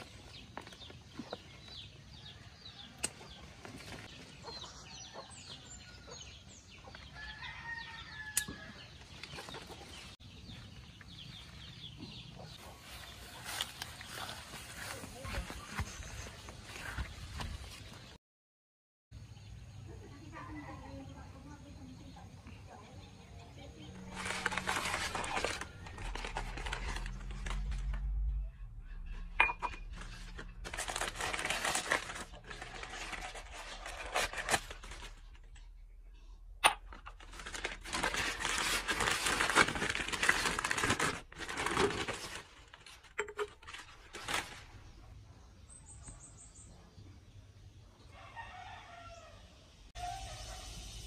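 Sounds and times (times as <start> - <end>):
plastic packaging rustling: 24.0 - 28.1, 29.9 - 35.5, 36.9 - 44.9.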